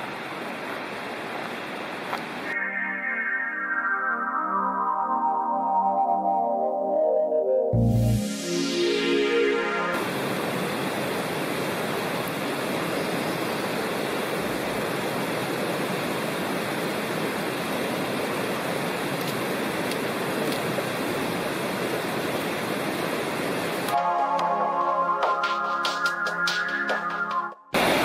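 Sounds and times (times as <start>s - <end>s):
water rushing over rocks: 10.0s - 23.9s.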